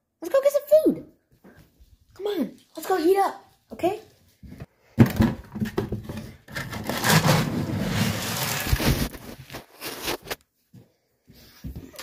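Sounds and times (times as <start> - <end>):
knocks on plastic bin: 5.0 - 6.1.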